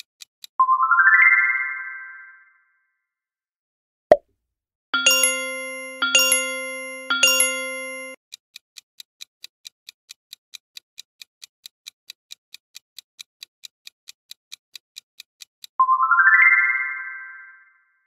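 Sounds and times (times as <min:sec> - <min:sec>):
countdown timer ticking: 0:05.0 - 0:08.2
ringing chime notes: 0:05.0 - 0:08.2.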